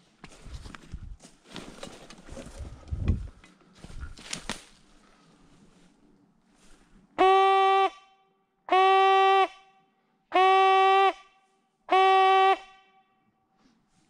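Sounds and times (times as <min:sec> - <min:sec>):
hunting horn blasts: 0:07.2 - 0:13.3.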